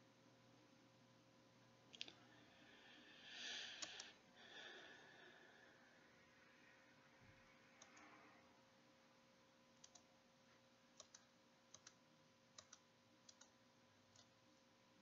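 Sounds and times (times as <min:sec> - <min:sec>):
computer control clicks: 0:09.8 - 0:10.1, 0:11.0 - 0:12.0, 0:12.6 - 0:14.3.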